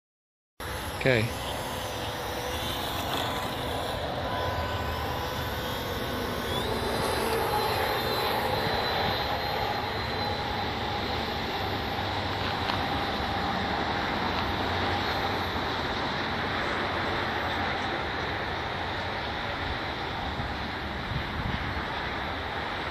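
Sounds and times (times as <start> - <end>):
small electric motor and propeller whining: 0.6 - 22.9
wind buffeting microphone: 20.2 - 22.9.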